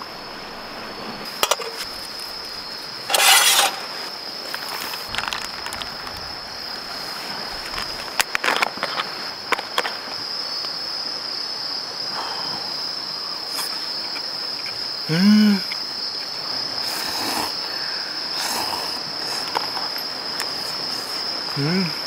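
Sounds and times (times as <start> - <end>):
crickets chirping: 0.0 - 22.0
person humming mm: 15.1 - 15.8, 21.6 - 22.0.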